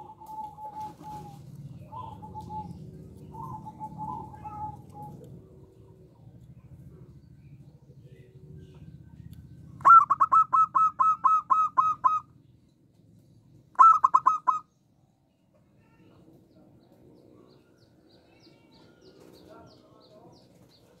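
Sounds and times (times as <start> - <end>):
dove cooing: 0.0 - 8.8, 9.6 - 12.3, 13.7 - 14.7.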